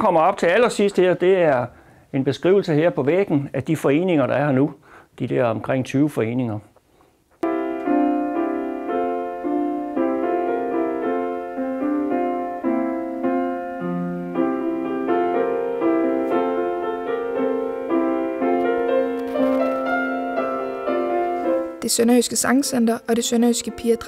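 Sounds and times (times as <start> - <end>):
slow legato piano piece: 7.4 - 24.0.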